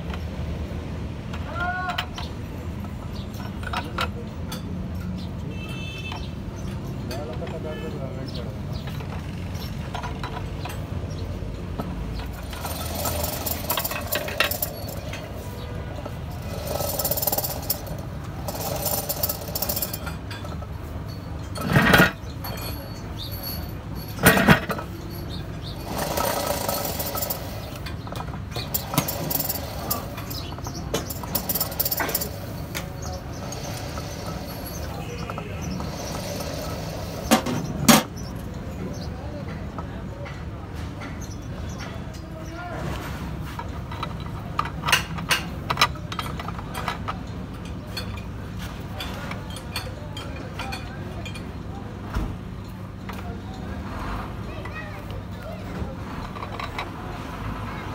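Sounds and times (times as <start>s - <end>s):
steel parts scraping and clinking: 1.9s - 5.4s, 8.7s - 39.2s, 42.9s - 51.6s, 55.8s - 57.6s
loud metallic clanks: 11.8s - 38.3s.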